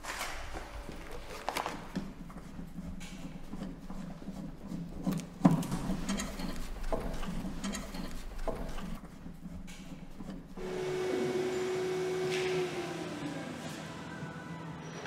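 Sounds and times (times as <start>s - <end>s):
steady hum with held tone: 10.6s - 14.8s.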